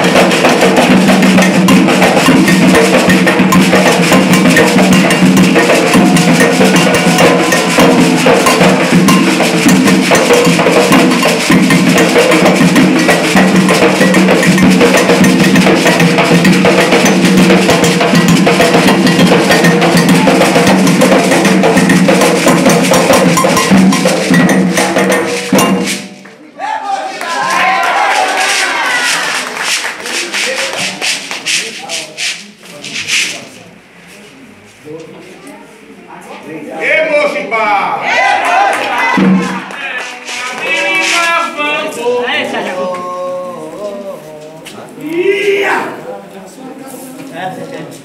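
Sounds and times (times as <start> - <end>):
drums playing fast beat: 0.0 - 26.2, 27.3 - 33.5, 38.1 - 41.6
metal bell: 1.3 - 26.0
crowd clapping: 27.0 - 31.8, 38.2 - 41.6.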